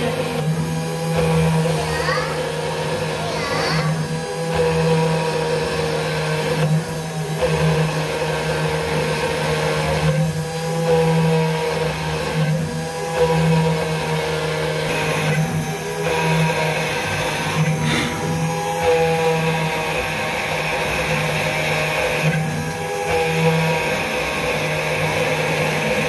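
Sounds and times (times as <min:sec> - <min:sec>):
engraving spindle motor whining: 0:00.0 - 0:26.0
bit cutting into stone: 0:17.4 - 0:19.8.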